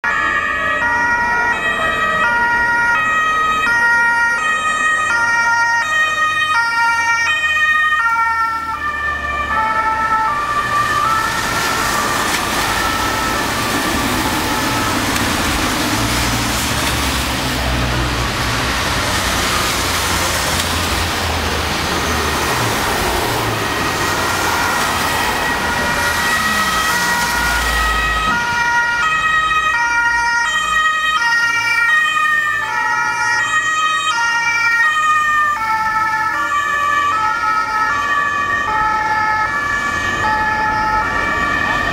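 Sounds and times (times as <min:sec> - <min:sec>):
two-tone police sirens: 0:00.0 - 0:41.9
tyres hissing on wet road: 0:10.3 - 0:29.2.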